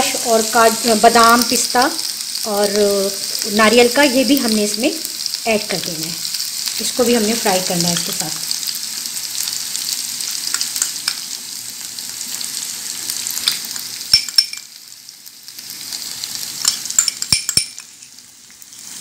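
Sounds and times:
paste sizzling in hot oil: 0.0 - 19.0
metal spoon clinking: 14.1 - 14.7, 16.6 - 18.2.

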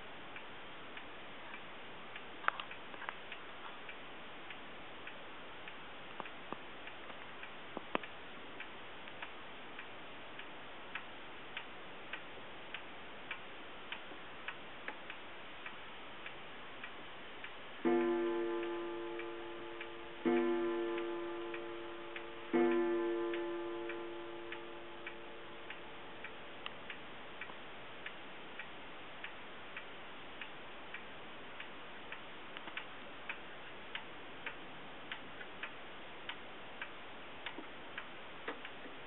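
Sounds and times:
clock ticking: 0.3 - 39.0
clock gong strike: 17.8 - 26.1.

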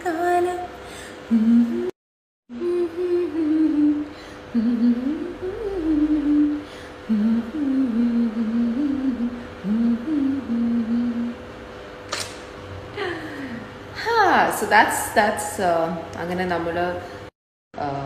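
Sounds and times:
woman humming a melody: 1.3 - 11.4.

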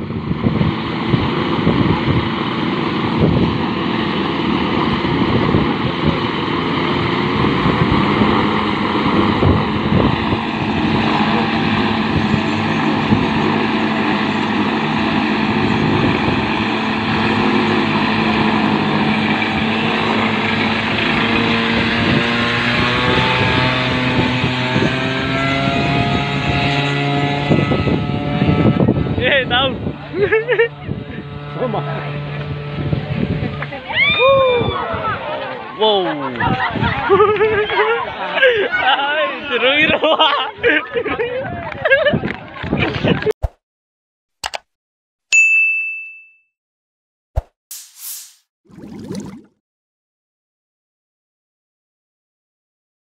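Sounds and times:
aircraft engine running: 0.0 - 33.6.

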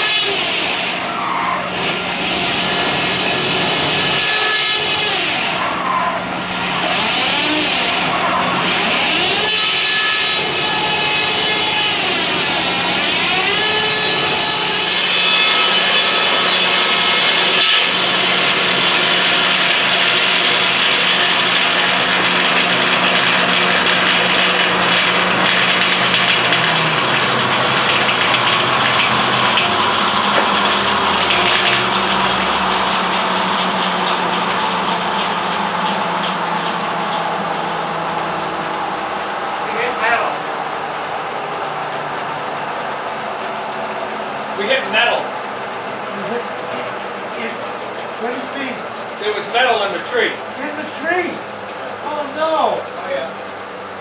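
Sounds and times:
saw rasping through log: 0.0 - 38.5
sawmill blades whining: 0.0 - 54.0.

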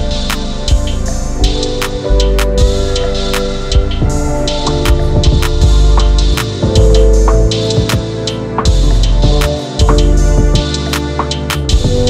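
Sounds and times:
deep bass line: 0.0 - 12.0
sharp percussion hits: 0.0 - 12.0
sustained chords: 0.0 - 12.0.

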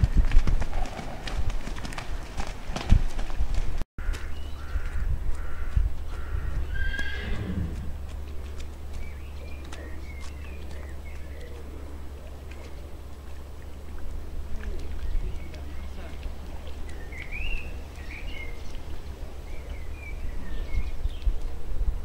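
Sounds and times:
wind rumble on microphone: 0.0 - 22.0
birds chirping: 4.0 - 21.6
faint voices: 9.3 - 20.7.

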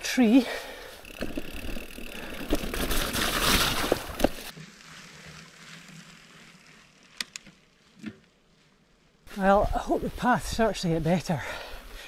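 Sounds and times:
bike riding over rough ground: 0.7 - 9.6
small clicks: 7.1 - 8.2.

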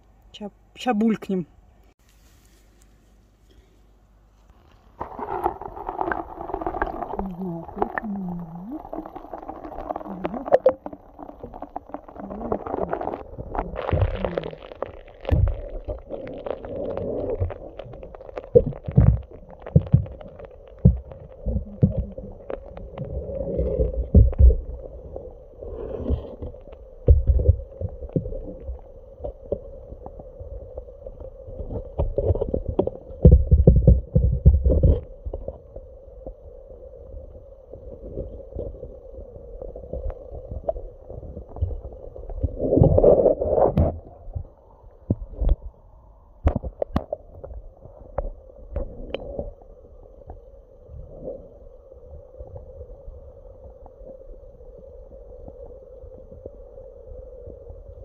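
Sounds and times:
muffled underwater hum: 4.8 - 58.0
dull underwater thumps: 18.6 - 22.2, 27.0 - 28.4, 31.7 - 35.1.

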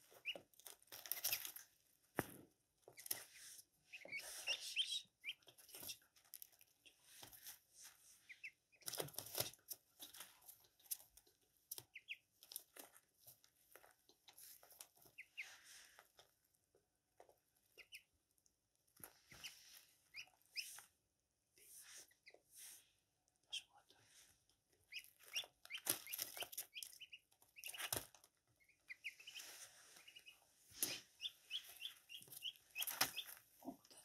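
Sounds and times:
ducklings pecking on paper: 0.0 - 22.7, 23.3 - 34.0
duckling peeps: 0.1 - 1.6, 2.8 - 7.4, 8.2 - 10.2, 11.7 - 12.6, 14.8 - 15.7, 17.3 - 18.2, 19.0 - 21.0, 21.6 - 22.6, 23.4 - 23.9, 24.6 - 34.0.

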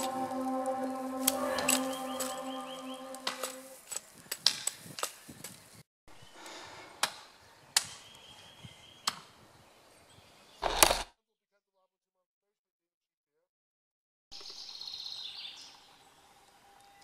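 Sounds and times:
background music: 0.0 - 3.8.

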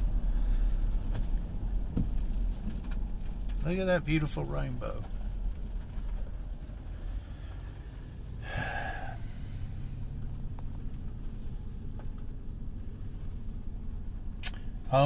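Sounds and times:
car engine and tyres rumbling: 0.0 - 15.0
short breathy noise: 7.0 - 10.2.

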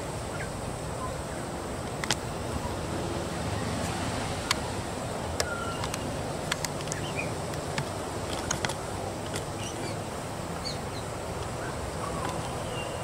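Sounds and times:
outdoor background hiss: 0.0 - 13.0
sharp clicks: 5.4 - 9.7.

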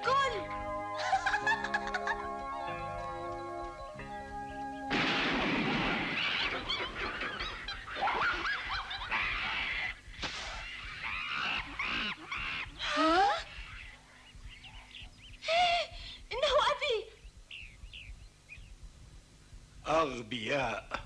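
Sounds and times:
monkeys screeching and chattering: 6.1 - 15.4
monkey screaming: 7.6 - 14.0.

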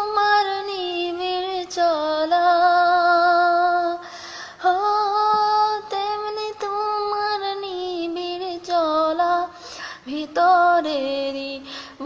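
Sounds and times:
woman singing: 0.0 - 12.0
woman drawing a quick breath: 4.0 - 4.6.

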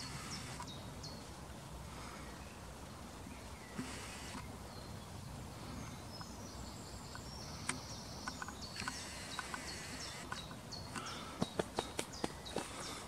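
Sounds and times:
footsteps on dry dirt path: 11.3 - 13.0.

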